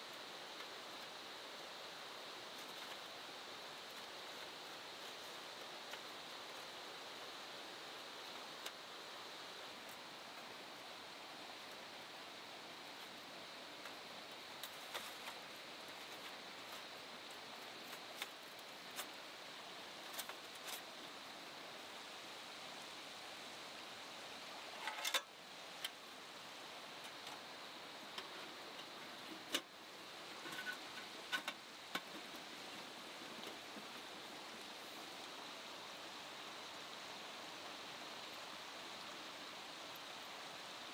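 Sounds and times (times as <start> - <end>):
river flowing: 0.0 - 40.9
small clicks and knocks: 24.7 - 26.0, 30.4 - 32.4.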